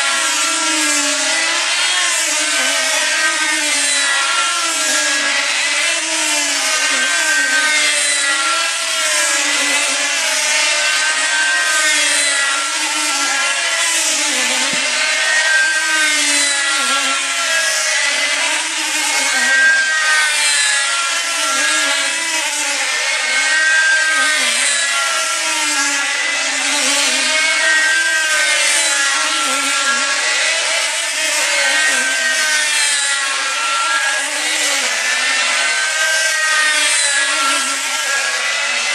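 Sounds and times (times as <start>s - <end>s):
model aircraft engines buzzing: 0.0s - 38.9s.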